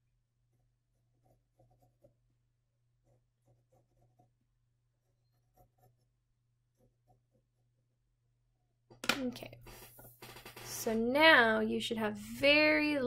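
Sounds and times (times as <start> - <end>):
pencil scratching on paper: 0.4 - 7.8.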